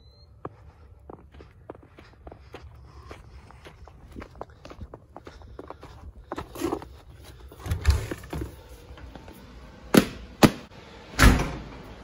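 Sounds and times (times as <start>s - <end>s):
footsteps: 0.4s - 9.5s.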